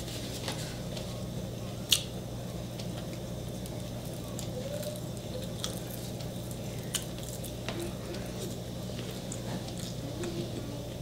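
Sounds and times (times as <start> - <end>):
low background hum: 0.0 - 11.0
chewing and crunching: 2.7 - 11.0.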